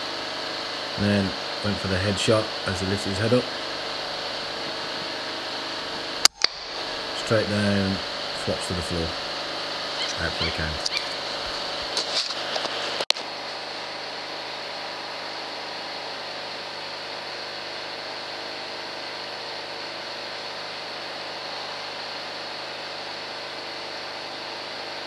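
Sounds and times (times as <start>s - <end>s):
generator engine humming: 0.0s - 24.7s
sharp click: 6.2s - 6.7s.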